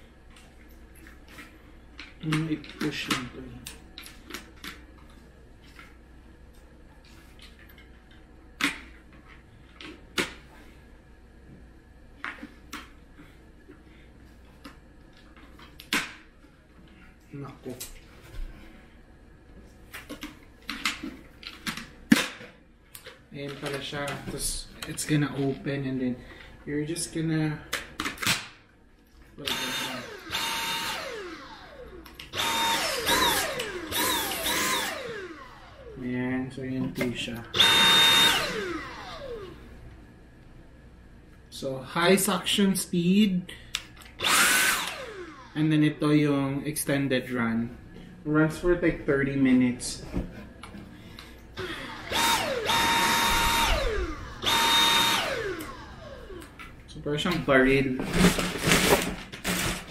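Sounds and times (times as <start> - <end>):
vacuum motor whining down: 29.5 - 36.0, 37.5 - 39.6, 44.2 - 45.6, 51.6 - 56.6.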